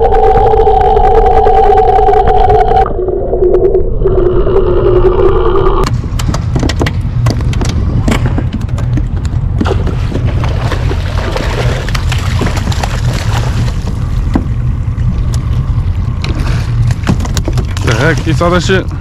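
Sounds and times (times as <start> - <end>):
low rumble: 0.0 - 19.0
fish thrashing and splashing: 9.6 - 14.3.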